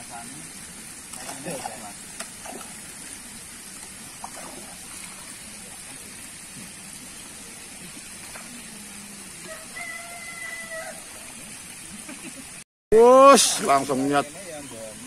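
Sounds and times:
faint high steady hiss: 0:00.0 - 0:15.0
water-like trickling hiss: 0:00.0 - 0:15.0.

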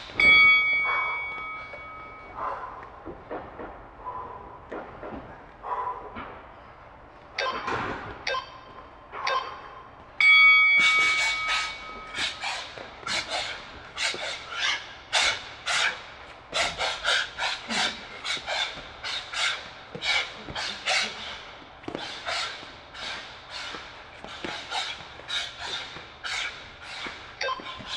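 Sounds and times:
long ringing timer tone: 0:00.2 - 0:02.3, 0:10.2 - 0:12.2
timer beeps: 0:00.2 - 0:02.3, 0:07.4 - 0:12.2, 0:27.4 - 0:27.8.

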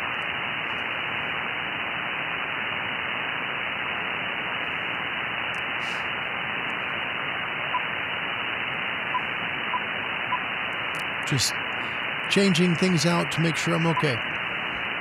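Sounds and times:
radio band noise hiss: 0:00.0 - 0:15.0.

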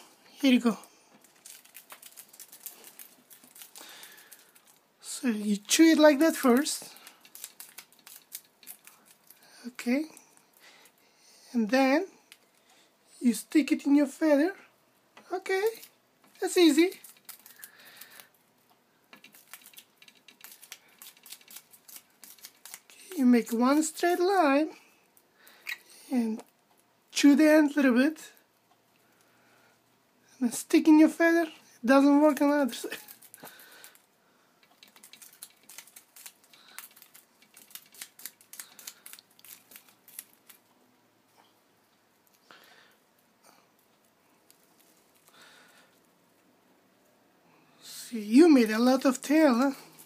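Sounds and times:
bird beak snipping paper: 0:06.4 - 0:09.3, 0:19.1 - 0:23.1, 0:34.7 - 0:40.6.

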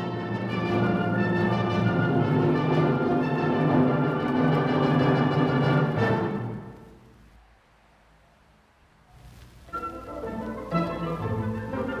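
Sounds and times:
orchestral music: 0:00.0 - 0:07.0, 0:09.6 - 0:12.0
faint low hum: 0:00.0 - 0:12.0.

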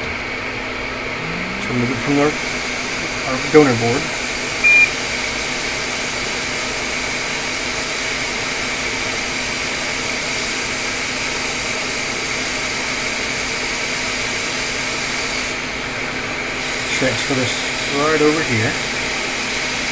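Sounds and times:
hot air blower hissing: 0:00.0 - 0:19.9.

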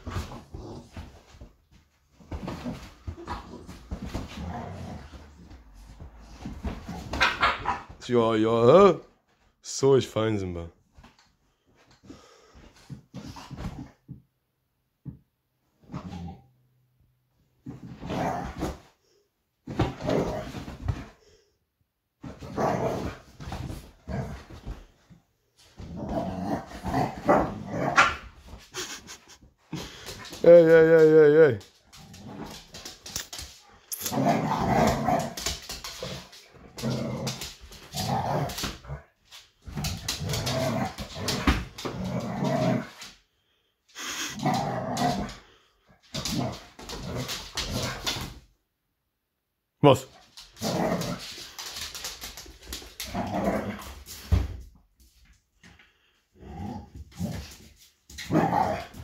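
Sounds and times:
dogs barking and growling: 0:02.3 - 0:08.0, 0:25.7 - 0:30.4, 0:31.9 - 0:43.1, 0:44.0 - 0:48.4, 0:50.4 - 0:53.9, 0:55.9 - 0:59.0.

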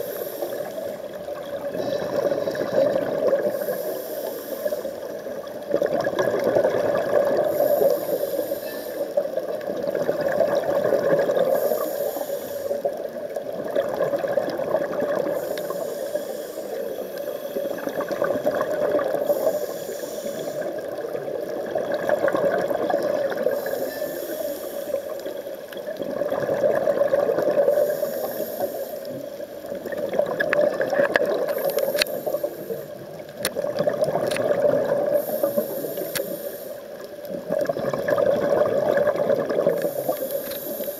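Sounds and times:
regulator inhale hiss: 0:00.0 - 0:01.2, 0:03.3 - 0:05.2, 0:07.4 - 0:09.4, 0:11.3 - 0:13.1, 0:15.2 - 0:18.2, 0:19.0 - 0:20.9, 0:23.3 - 0:25.7, 0:27.6 - 0:29.5, 0:31.4 - 0:33.3, 0:35.1 - 0:37.2, 0:39.7 - 0:40.9
exhaled bubbles rushing: 0:01.2 - 0:03.6, 0:05.1 - 0:07.6, 0:09.3 - 0:11.6, 0:13.2 - 0:15.5, 0:17.7 - 0:19.3, 0:20.6 - 0:23.7, 0:25.2 - 0:27.9, 0:29.6 - 0:35.3, 0:37.2 - 0:40.2.

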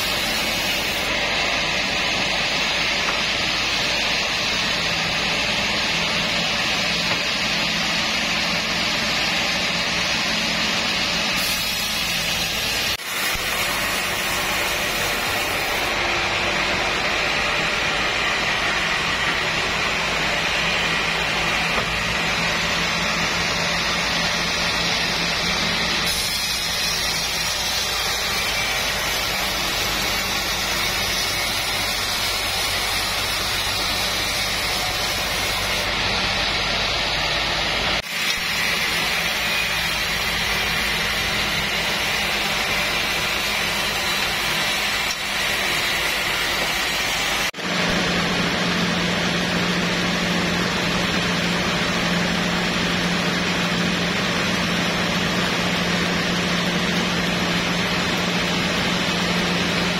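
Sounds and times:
band saw blade hissing: 0:00.0 - 0:07.5, 0:11.2 - 0:36.0, 0:38.0 - 0:47.6.

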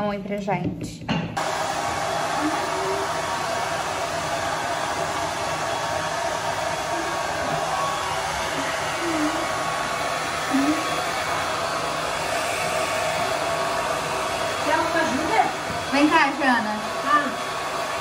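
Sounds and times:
hair dryer blowing: 0:01.4 - 0:18.0.

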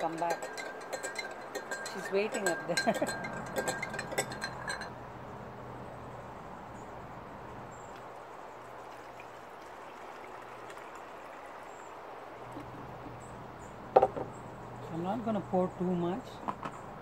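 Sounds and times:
water pouring into plastic bottle: 0:08.6 - 0:12.5.

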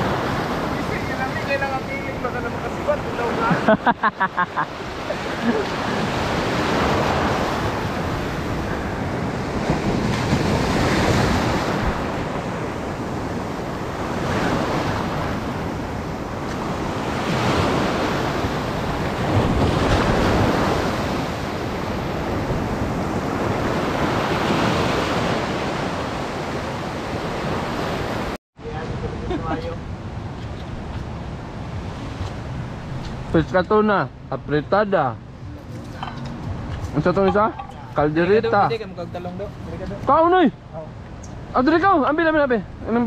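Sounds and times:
surf breaking on shore: 0:00.0 - 0:34.0
wind buffeting microphone: 0:04.7 - 0:34.3.

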